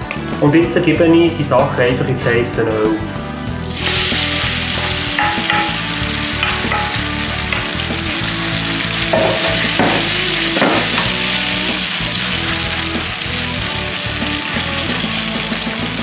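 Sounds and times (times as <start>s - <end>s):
background music: 0.0s - 16.0s
food sizzling in a frying pan: 3.7s - 16.0s.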